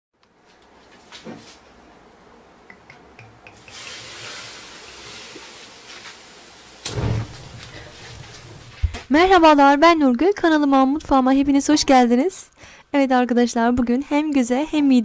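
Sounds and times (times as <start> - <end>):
liquid pouring: 3.5 - 8.8.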